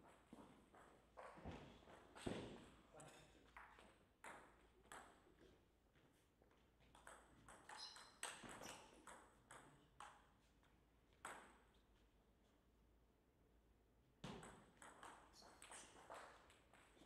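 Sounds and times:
table tennis ball knocking: 14.2s - 16.3s.

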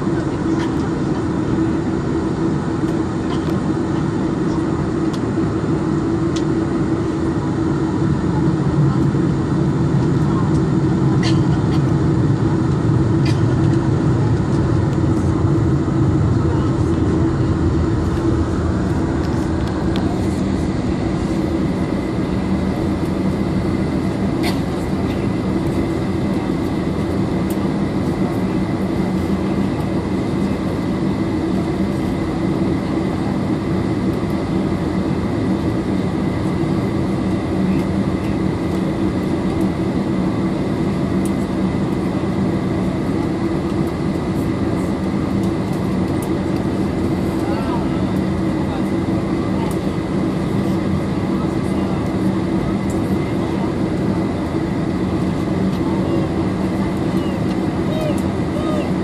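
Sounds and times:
airplane cabin engine rumble: 0.0s - 59.0s
cabin air hum: 5.1s - 31.6s.

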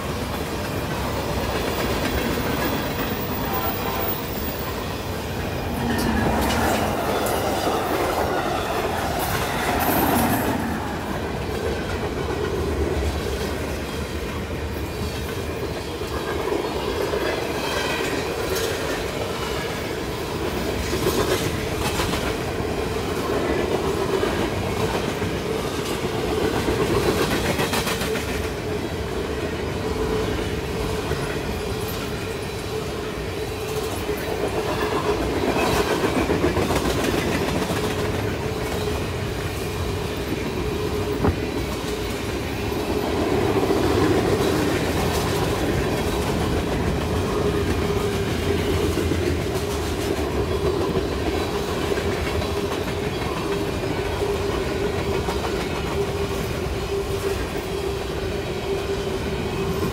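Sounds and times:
train wheels clacking: 0.0s - 28.8s, 30.1s - 58.2s
train rolling drone: 0.0s - 59.9s.

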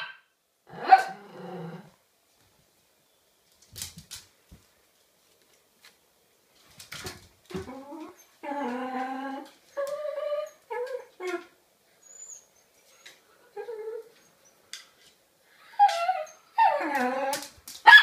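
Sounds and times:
small dog whining and crying: 7.6s - 12.7s, 15.6s - 18.0s.

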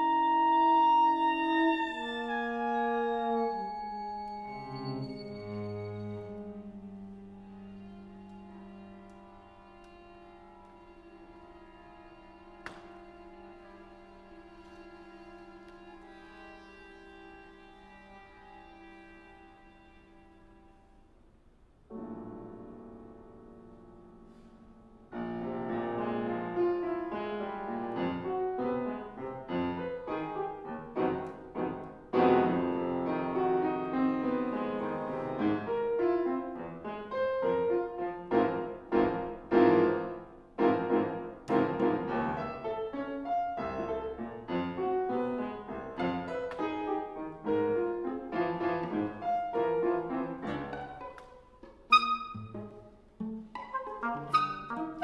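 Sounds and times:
chamber ensemble playing: 0.0s - 20.9s, 46.0s - 55.0s
piano notes: 0.0s - 21.1s, 21.9s - 55.0s.

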